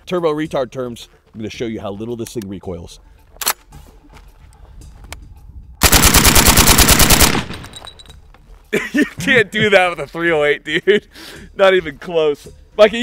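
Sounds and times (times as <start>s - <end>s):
suppressed rifle full-auto burst: 5.8s - 7.9s.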